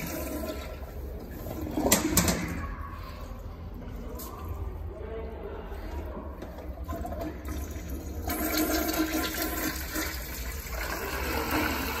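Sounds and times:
toilet flushing: 0:00.0 - 0:02.6, 0:06.7 - 0:12.0.

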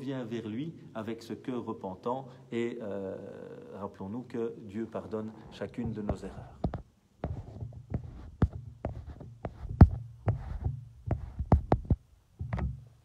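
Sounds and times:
phone handling knocks and thumps: 0:05.8 - 0:13.0.

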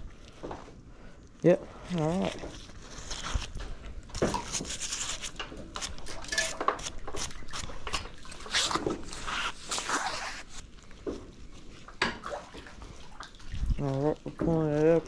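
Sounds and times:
clothing brushing microphone: 0:08.4 - 0:10.7.

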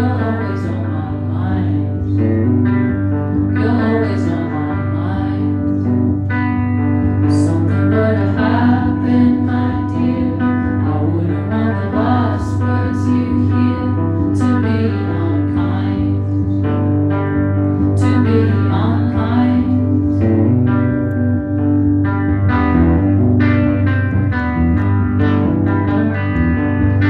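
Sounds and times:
woman singing: 0:00.0 - 0:02.4, 0:03.4 - 0:06.4, 0:07.1 - 0:16.8, 0:17.8 - 0:20.5
strummed electric guitar: 0:00.0 - 0:27.0.

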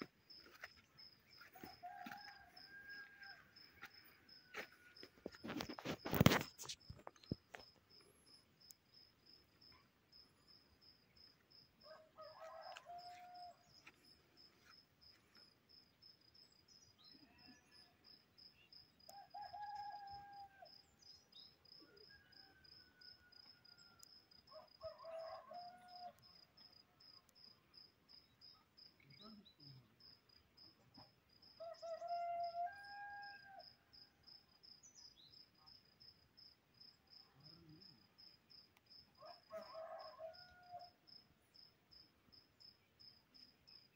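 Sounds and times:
faint cricket chirping: 0:00.0 - 0:43.9
rooster crowing: 0:01.4 - 0:05.1, 0:11.8 - 0:13.7, 0:19.1 - 0:20.7, 0:22.0 - 0:26.2, 0:31.6 - 0:33.8, 0:39.2 - 0:41.0.

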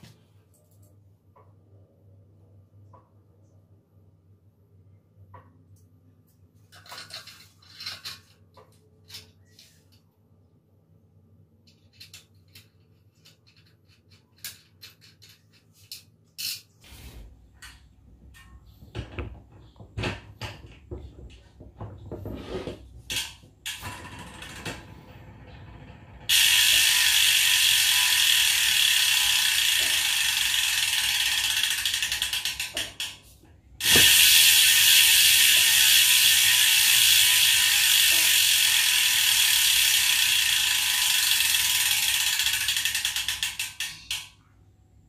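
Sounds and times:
bicycle freehub clicking: 0:26.3 - 0:44.4.

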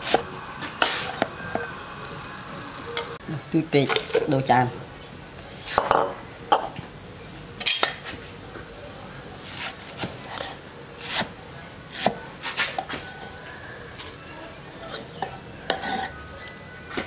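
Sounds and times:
utensils and dishes clinking: 0:14.8 - 0:17.0.

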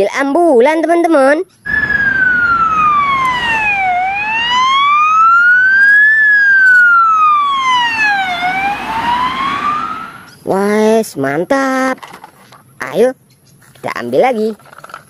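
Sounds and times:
ambulance siren wailing: 0:01.7 - 0:10.4.

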